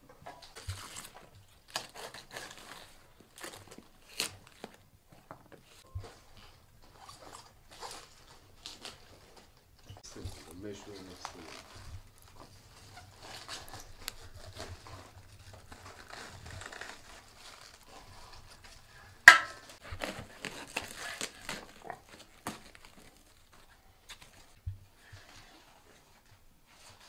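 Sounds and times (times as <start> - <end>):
wood fire crackling: 0.0 - 25.2
cabbage leaves crunching: 10.0 - 23.5.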